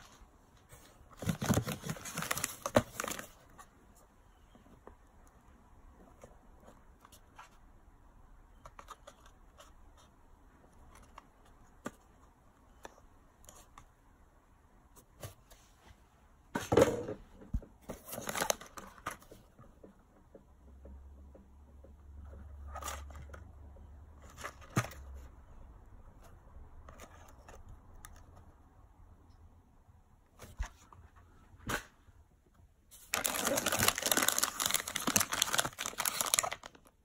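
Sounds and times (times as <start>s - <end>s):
packaging rustling and scraping: 0.1s - 3.6s, 33.0s - 36.9s.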